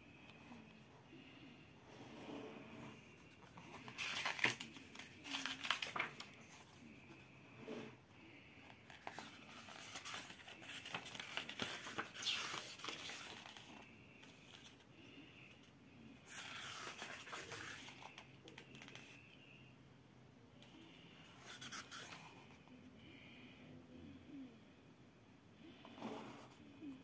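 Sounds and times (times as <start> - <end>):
book pages turning: 2.9 - 6.8, 8.9 - 14.8, 16.3 - 19.2, 21.4 - 22.4.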